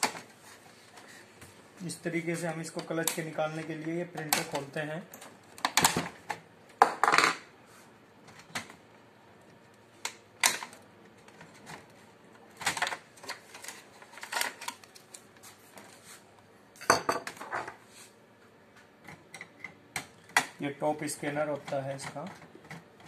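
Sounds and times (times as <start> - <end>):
plastic clicks and clatter: 2.8 - 6.4.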